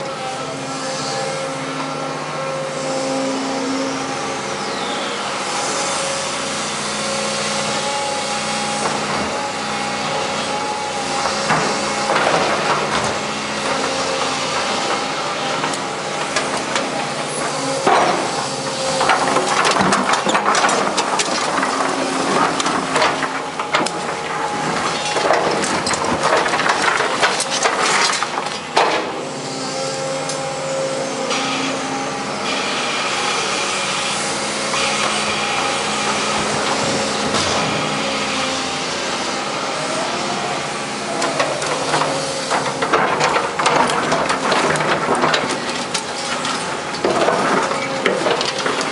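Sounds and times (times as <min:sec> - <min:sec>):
excavator diesel engine: 0:00.0 - 0:48.9
bucket scraping concrete rubble: 0:11.0 - 0:29.0, 0:41.0 - 0:48.9.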